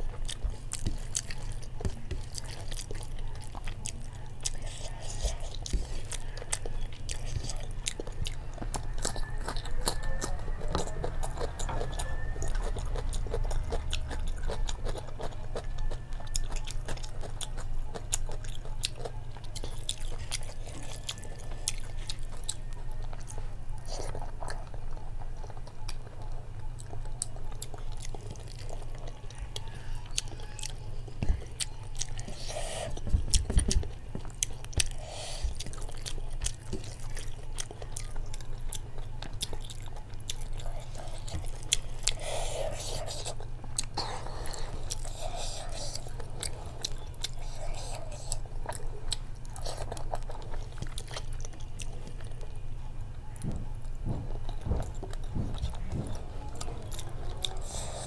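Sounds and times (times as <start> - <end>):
person chewing food: 0.0 - 58.0.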